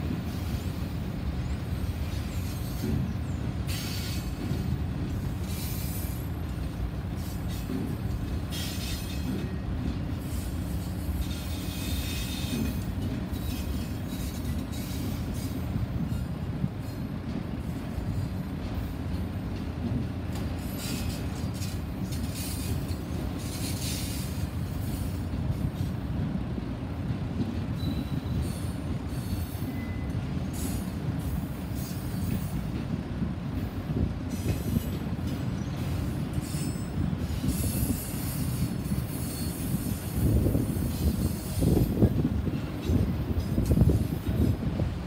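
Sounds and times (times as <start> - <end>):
train wheels rumbling on rail: 0.0 - 45.0
wheel squeal and screech: 36.4 - 41.9.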